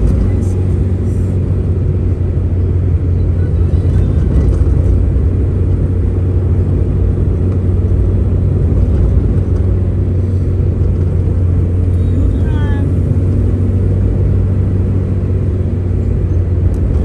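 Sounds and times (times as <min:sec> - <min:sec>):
car interior road rumble: 0:00.0 - 0:17.0.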